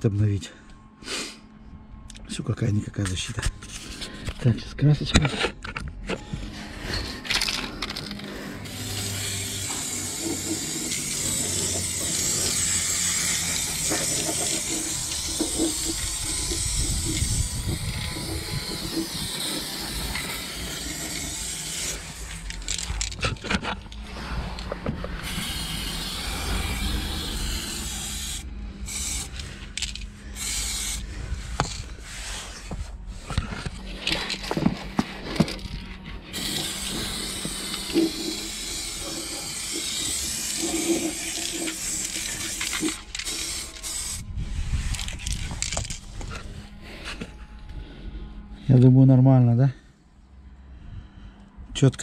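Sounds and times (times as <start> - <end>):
aerosol spray can hissing: 8.6 - 22.7, 25.2 - 32.4, 36.3 - 44.2.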